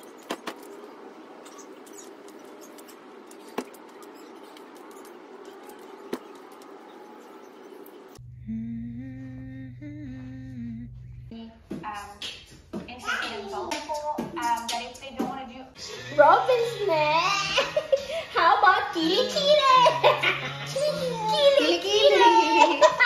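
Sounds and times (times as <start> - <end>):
person humming a melody: 8.2 - 11.6.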